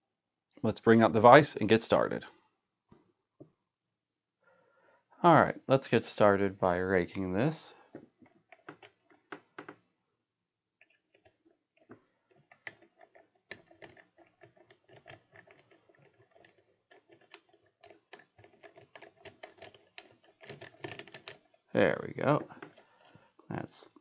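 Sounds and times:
lock pick clicking and scratching: 0:08.1 - 0:09.8, 0:10.8 - 0:21.7, 0:22.4 - 0:23.1.

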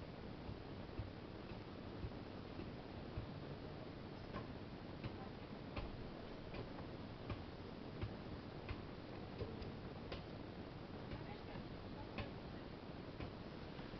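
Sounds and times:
steady hiss: 0:00.0 - 0:13.9
faint regular ticking: 0:00.2 - 0:13.5.

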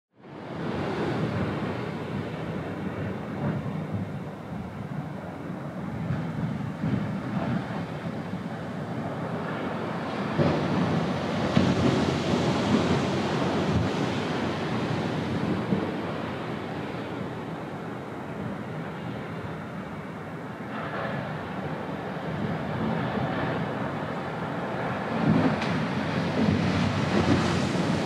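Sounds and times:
surf breaking on beach: 0:06.0 - 0:19.5, 0:20.6 - 0:28.0.

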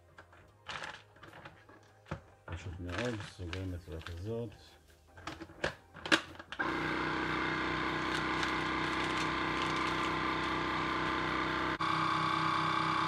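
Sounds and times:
vacuum sealer pump running: 0:06.5 - 0:13.0.

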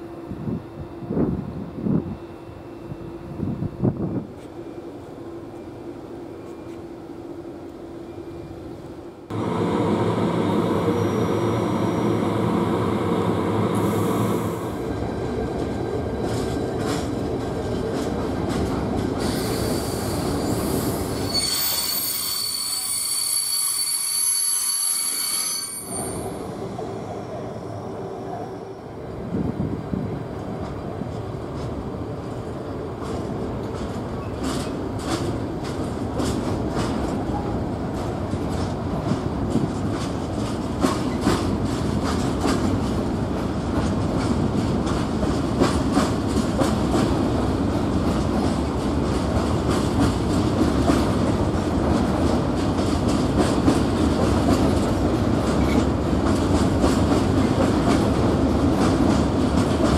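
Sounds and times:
train rumbling: 0:00.0 - 0:59.9
train wheels clicking on rails: 0:09.3 - 0:22.1, 0:30.4 - 0:59.9.

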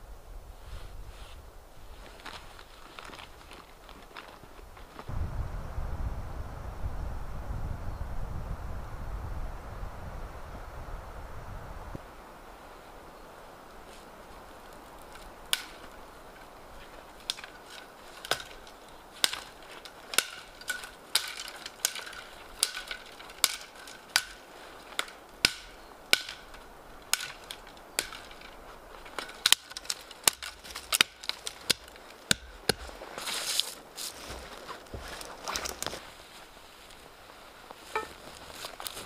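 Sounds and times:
dry branches cracking: 0:02.0 - 0:05.1, 0:13.7 - 0:39.0.

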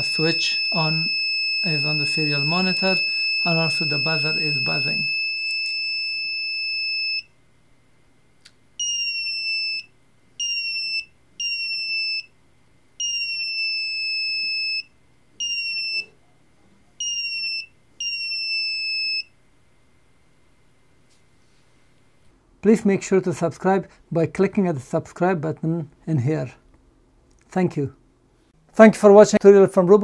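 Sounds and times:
electronic buzzer high tone: 0:00.0 - 0:07.3, 0:08.8 - 0:12.3, 0:13.0 - 0:16.1, 0:17.0 - 0:19.3.

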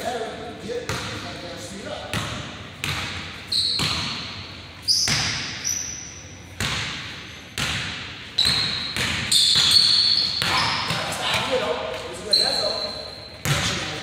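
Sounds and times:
basketball bouncing on wood floor: 0:02.1 - 0:04.2, 0:06.6 - 0:12.0
sneaker squeaks: 0:02.1 - 0:14.0.

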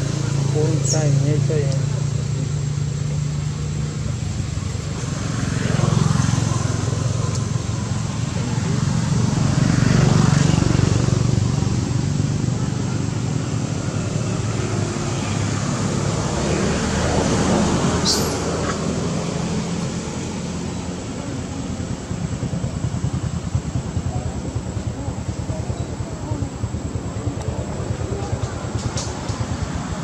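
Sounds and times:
motor engine running: 0:19.5 - 0:30.0.

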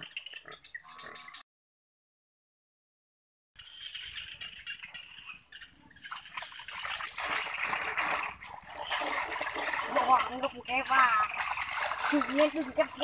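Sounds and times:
muddy water sloshing and splashing: 0:06.0 - 0:13.0.

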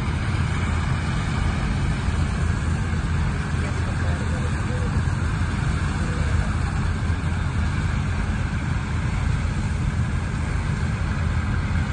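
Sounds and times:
combine harvester drone: 0:00.0 - 0:11.9
tractor running: 0:00.0 - 0:11.9.

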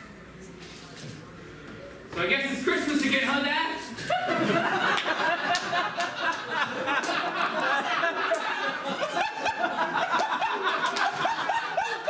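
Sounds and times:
audience laughing: 0:04.0 - 0:12.0.

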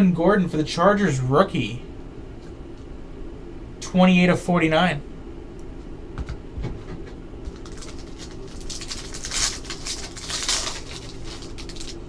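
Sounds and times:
steady low hum: 0:00.0 - 0:12.0
foil pack crinkling: 0:07.4 - 0:12.0.

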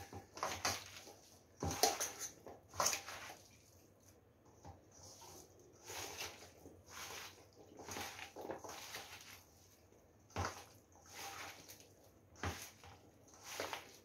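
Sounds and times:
hands squishing food in a bowl: 0:00.0 - 0:14.0.

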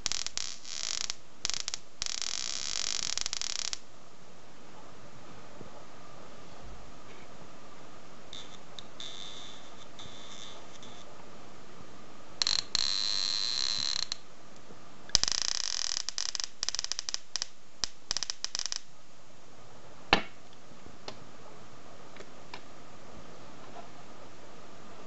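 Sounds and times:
electric sparks crackling: 0:00.0 - 0:03.8, 0:15.2 - 0:18.9.

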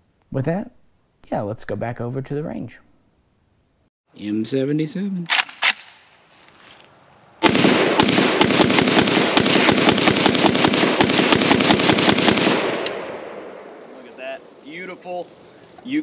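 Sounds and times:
rifle firing rapid shots: 0:07.4 - 0:13.1
gunshot echoes: 0:07.4 - 0:14.1.

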